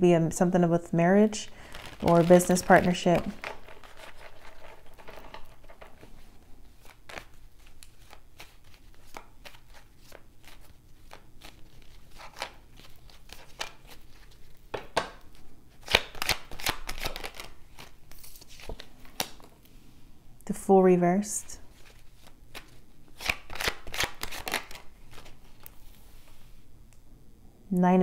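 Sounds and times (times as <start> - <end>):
cards being shuffled: 1.5 - 19.5, 21.7 - 26.4.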